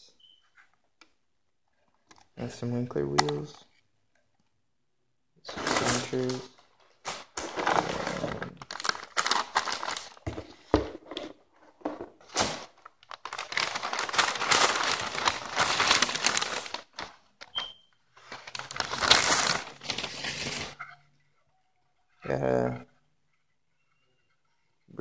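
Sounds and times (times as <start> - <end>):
paper crumpling and rustling: 7.1 - 10.6, 12.0 - 17.6, 18.2 - 20.9.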